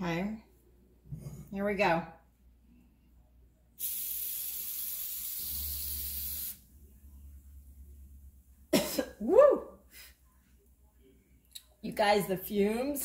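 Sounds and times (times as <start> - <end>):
aerosol can spraying: 3.8 - 6.6
person coughing: 8.7 - 9.2.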